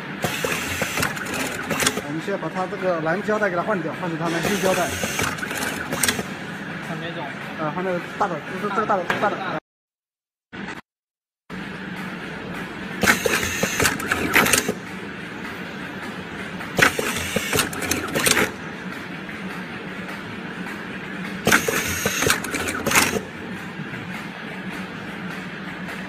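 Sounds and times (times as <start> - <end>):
steady machine hum: 0.0 - 9.0, 11.5 - 26.0
machine clattering and clicking: 0.2 - 3.4, 4.3 - 6.4, 12.0 - 26.0.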